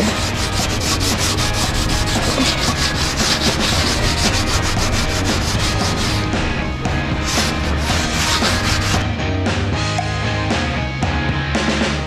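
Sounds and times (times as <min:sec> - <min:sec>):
scouring pad scrubbing metal: 0:00.0 - 0:09.0.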